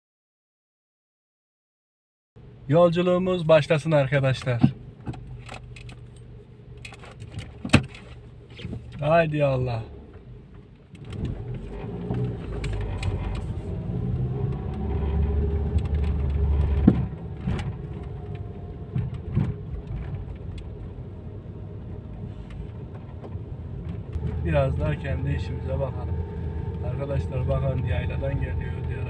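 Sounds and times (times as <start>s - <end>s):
car engine and road rumble: 2.4s - 29.0s
rattles and clicks: 4.3s - 9.1s, 10.1s - 20.9s.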